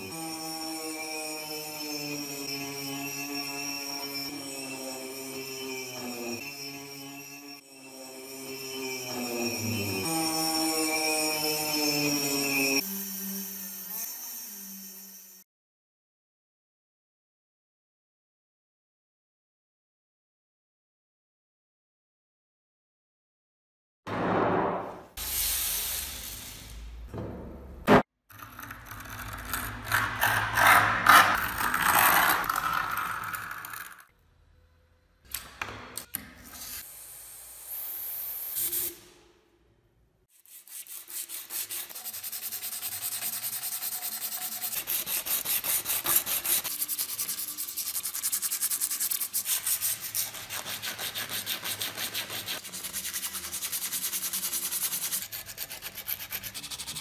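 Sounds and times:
sandpaper rubbing on metal: 0:40.3 - 0:57.0.

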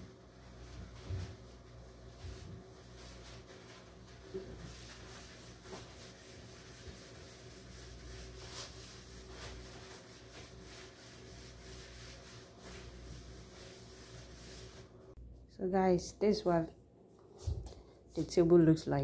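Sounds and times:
cloth rubbing on table: 0:00.5 - 0:15.0.

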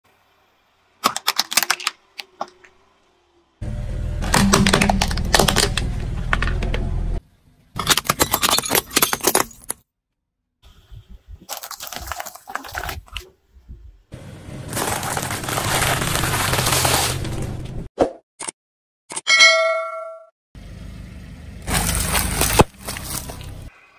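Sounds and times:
plastic cracking and crunching: 0:01.0 - 0:02.7, 0:04.2 - 0:06.6, 0:11.5 - 0:13.3, 0:14.7 - 0:17.4, 0:21.7 - 0:23.6
wrapped snacks crunching: 0:11.5 - 0:13.2, 0:14.7 - 0:17.3, 0:21.7 - 0:23.7.

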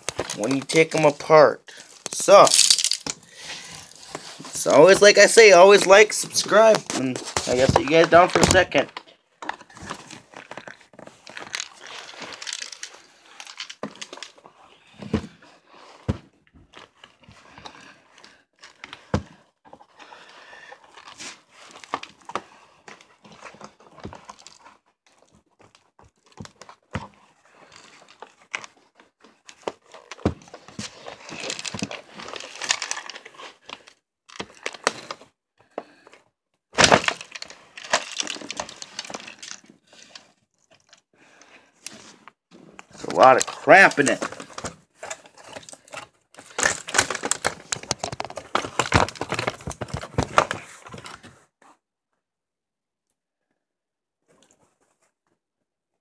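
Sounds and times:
handling clicks and knocks: 0:01.8 - 0:03.2, 0:05.8 - 0:14.4, 0:36.8 - 0:40.1.

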